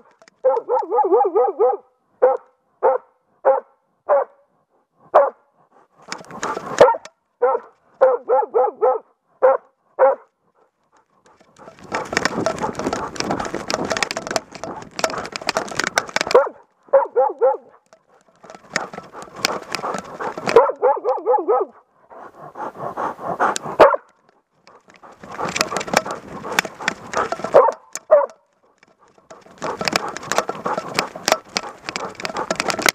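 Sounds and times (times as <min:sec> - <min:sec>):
dog barking: 0:00.4 - 0:04.5, 0:05.1 - 0:05.5, 0:06.4 - 0:10.4, 0:16.2 - 0:17.8, 0:18.8 - 0:21.9, 0:23.4 - 0:24.1, 0:27.1 - 0:28.4.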